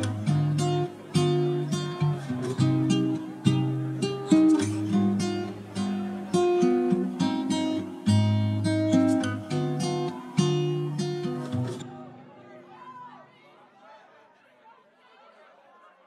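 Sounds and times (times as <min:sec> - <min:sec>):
strummed acoustic guitar: 0:00.0 - 0:12.5.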